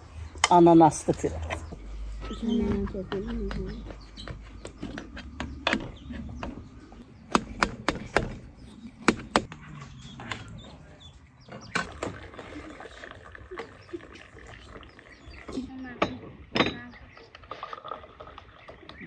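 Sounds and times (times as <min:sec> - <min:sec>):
sharp clicks and knocks: 0:02.8 - 0:08.4.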